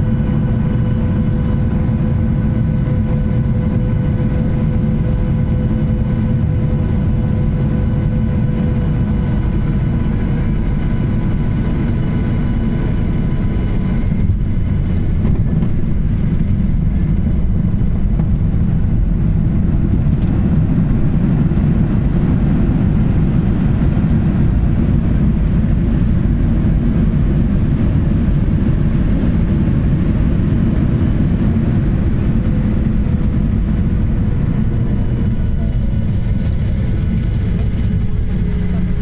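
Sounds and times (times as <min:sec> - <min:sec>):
jet engines rumbling: 0:00.0 - 0:39.0
wheels rolling on runway: 0:34.6 - 0:39.0.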